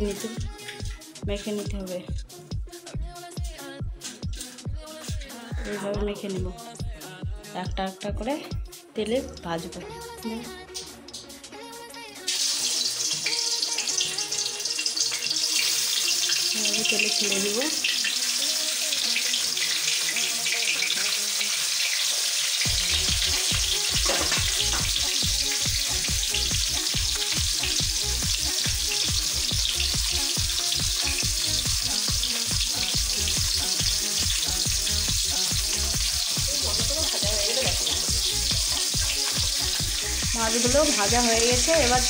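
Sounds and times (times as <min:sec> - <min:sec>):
fish sizzling in hot oil: 0:00.0 - 0:05.6, 0:10.4 - 0:42.0
low rhythmic beat: 0:00.0 - 0:11.4.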